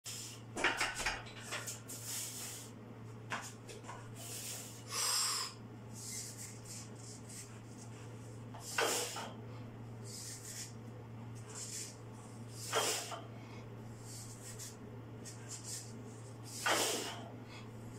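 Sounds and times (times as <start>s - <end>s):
sharp breaths: 4.2s - 7.5s.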